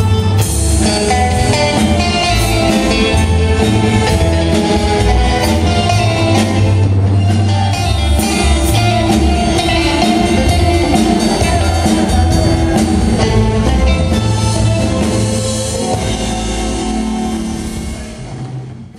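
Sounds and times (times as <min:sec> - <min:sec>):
live band with electric guitar: 0:00.0 - 0:18.9
person singing: 0:07.7 - 0:17.0.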